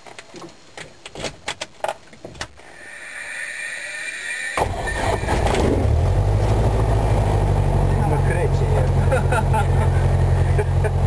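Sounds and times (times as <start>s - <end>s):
electric starter whine: 2.6s - 7.8s.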